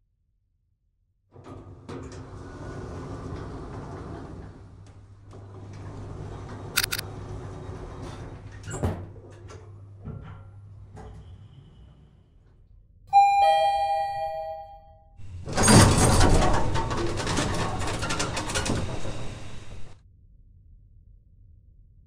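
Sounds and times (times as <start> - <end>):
sharp click: 6.8 - 7.0
rattling and scraping: 15.2 - 20.0.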